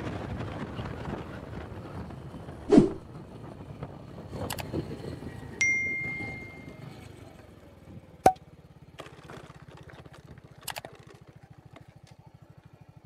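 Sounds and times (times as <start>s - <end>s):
motorcycle engine idling: 5.8s - 13.0s.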